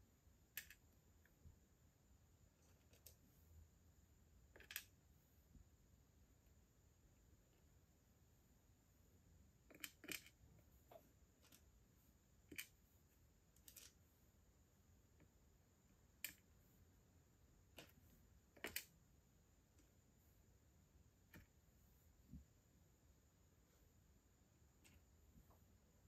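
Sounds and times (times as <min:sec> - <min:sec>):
tweezers clicking on plastic beads: 0:00.5 - 0:00.9, 0:04.5 - 0:05.0, 0:09.6 - 0:10.4, 0:12.4 - 0:12.8, 0:16.1 - 0:16.5, 0:17.7 - 0:19.0.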